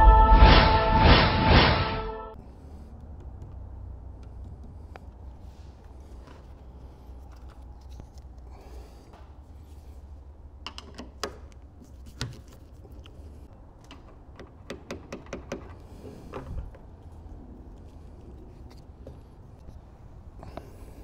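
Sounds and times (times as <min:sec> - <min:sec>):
low steady hum: 0:00.0 - 0:10.6.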